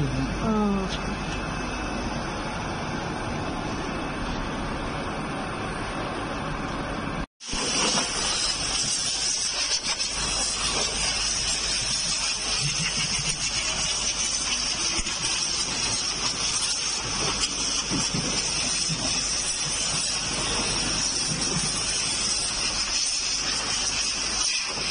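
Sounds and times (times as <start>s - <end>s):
compressed air hissing: 7.4s - 24.9s.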